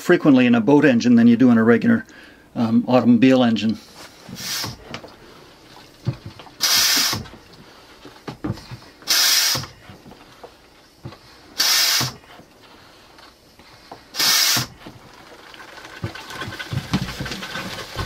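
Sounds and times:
suction tube gulping air: 0:04.3 - 0:07.6
faint crackles: 0:14.8 - 0:18.0.

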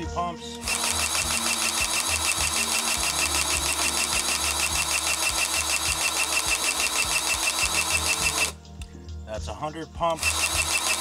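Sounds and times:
battery grease gun pumping: 0:00.6 - 0:08.6, 0:10.2 - 0:11.0.

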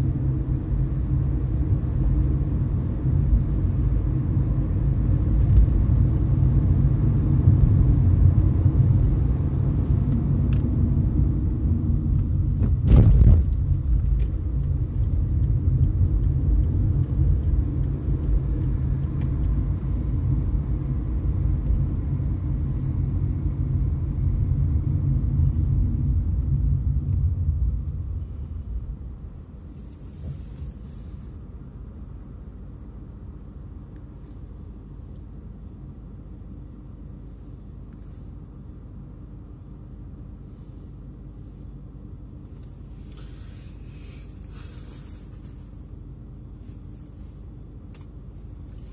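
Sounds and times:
car road and engine rumble: 0:00.0 - 0:48.9
loud thump: 0:12.6 - 0:13.5.

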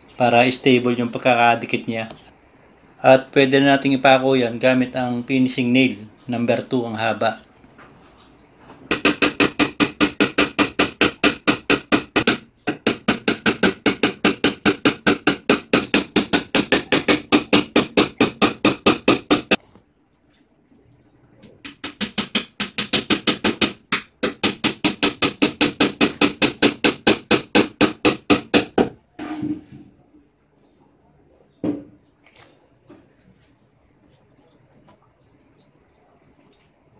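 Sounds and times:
hammer tapping nails into wood: 0:08.9 - 0:19.6, 0:21.6 - 0:29.0.

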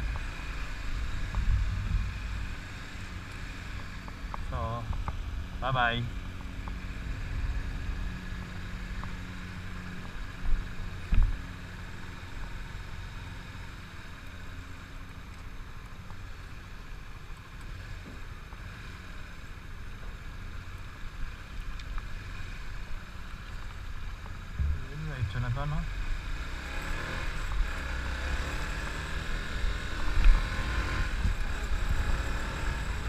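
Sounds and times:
motorcycle engine rumbling: 0:22.5 - 0:28.0.

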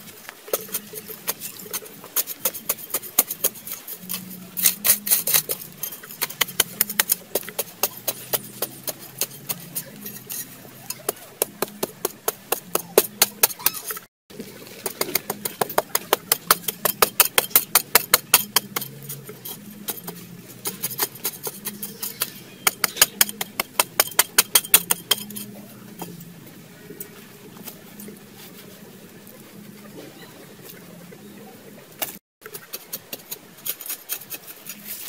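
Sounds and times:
metal blade chopping stony soil: 0:00.5 - 0:13.9, 0:14.8 - 0:25.5, 0:32.0 - 0:35.0.

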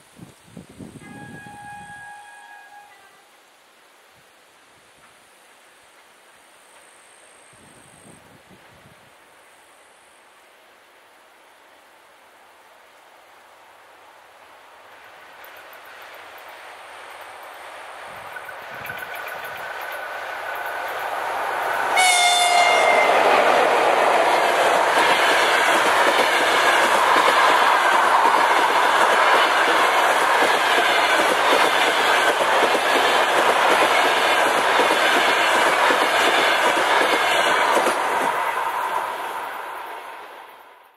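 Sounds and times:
train horn: 0:00.9 - 0:03.4, 0:21.9 - 0:24.0
train carriages rumbling past: 0:14.9 - 0:40.9
wheels clacking on rail joints: 0:18.2 - 0:38.8.

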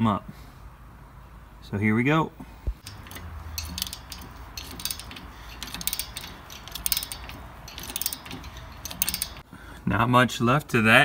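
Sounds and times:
socket ratchet clicking: 0:02.8 - 0:09.4.

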